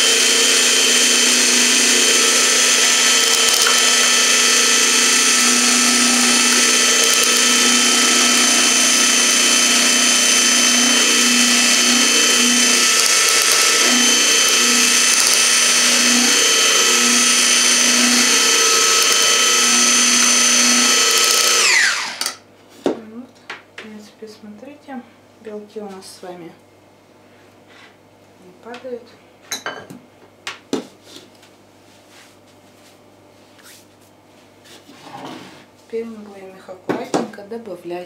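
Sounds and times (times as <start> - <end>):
hand blender whisking: 0.0 - 22.4.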